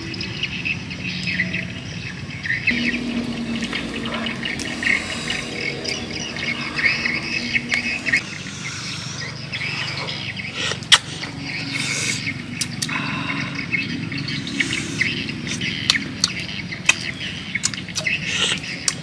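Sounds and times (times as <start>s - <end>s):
birds chirping: 0.0s - 19.0s.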